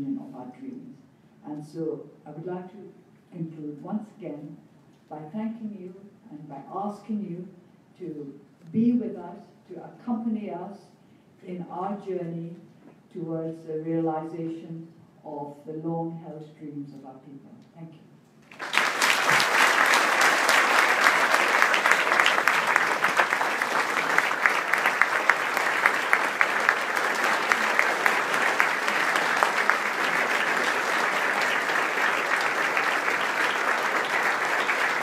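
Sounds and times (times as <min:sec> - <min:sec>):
audience applauding: 0:18.5 - 0:35.0.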